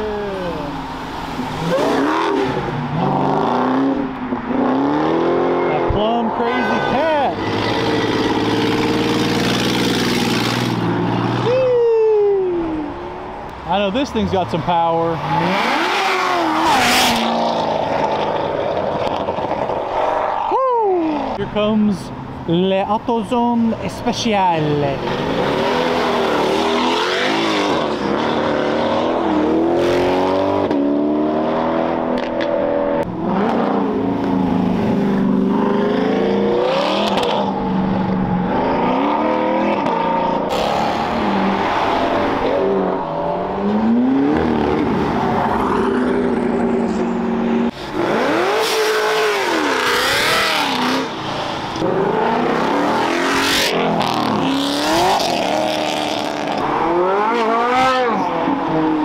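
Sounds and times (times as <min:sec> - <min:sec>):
cars accelerating past: 0:00.2 - 0:11.7, 0:15.2 - 0:21.4, 0:25.0 - 0:59.0.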